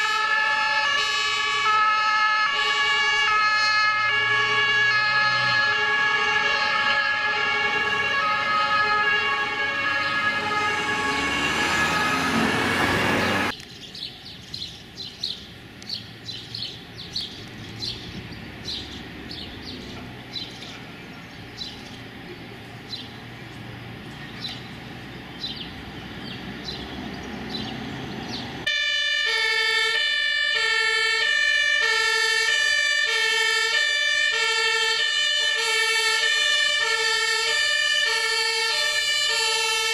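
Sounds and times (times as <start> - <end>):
two-tone sirens: 0.0 - 13.5, 28.6 - 39.9
quiet street sound: 0.0 - 39.9.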